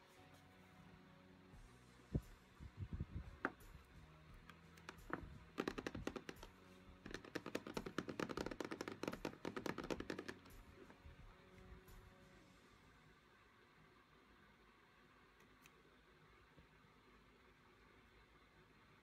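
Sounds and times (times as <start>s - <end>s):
fingers tapping on shrink-wrapped box: 4.5s - 11.0s.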